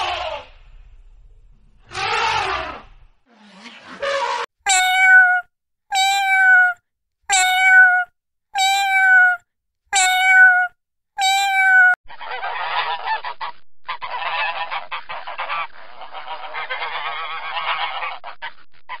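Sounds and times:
kitten meowing: 4.7 - 12.0
waterfowl calls: 12.1 - 18.6.

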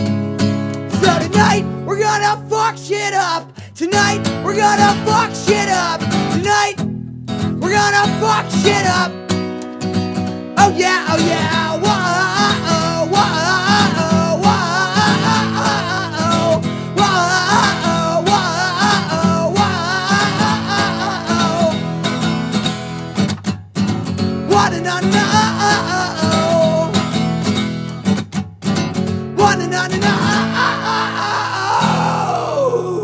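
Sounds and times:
strummed acoustic guitar: 0.0 - 32.8
person singing wordless whoa: 1.0 - 6.8, 7.6 - 9.1, 10.6 - 22.0, 24.5 - 27.0, 29.4 - 33.0.

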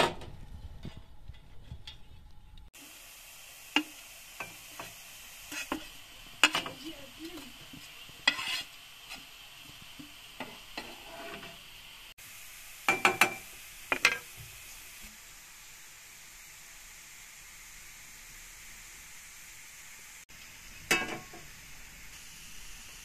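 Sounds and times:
greens sizzling in frying pan: 2.7 - 23.0
spatula scraping and knocking pan: 3.8 - 11.8, 12.9 - 14.5, 20.9 - 21.5.

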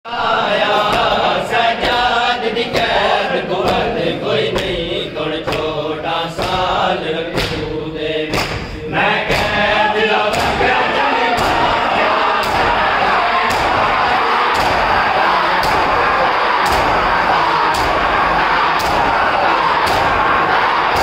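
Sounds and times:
hand slaps on chest: 7.3 - 7.7, 8.3 - 8.7, 10.3 - 10.6, 12.4 - 12.7, 13.5 - 13.8, 14.5 - 14.8, 15.6 - 16.0, 18.8 - 19.1.

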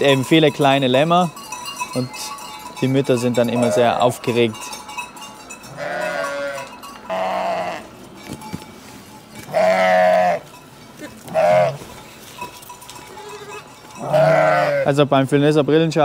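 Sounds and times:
sheep bleating: 3.5 - 4.2, 5.7 - 7.9, 9.5 - 11.9, 13.1 - 14.9.

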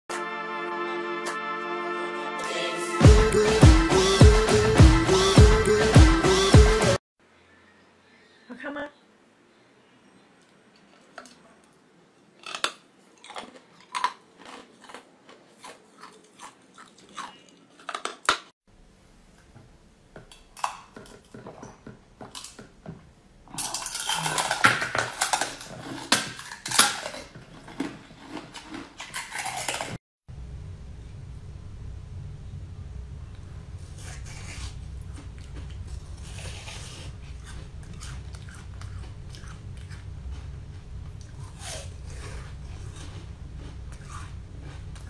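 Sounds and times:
chewing: 10.4 - 18.5, 23.5 - 30.0, 34.0 - 45.0
crisp bites and crunching: 12.4 - 18.2, 23.5 - 30.0.

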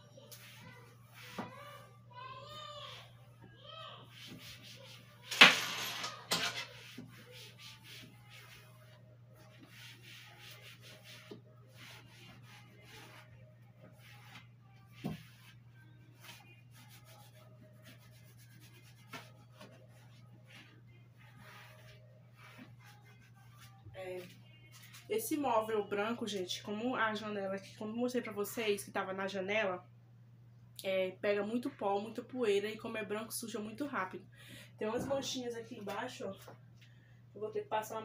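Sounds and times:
cloth rubbing shelves: 6.6 - 25.0.

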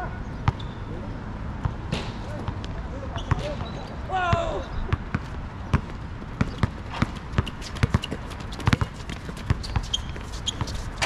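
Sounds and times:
basketball bouncing on asphalt: 4.3 - 11.0
footsteps of players running: 5.2 - 11.0.

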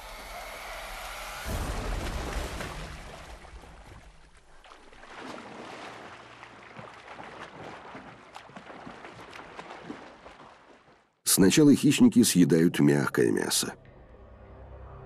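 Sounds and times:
water splashing: 0.0 - 11.2.

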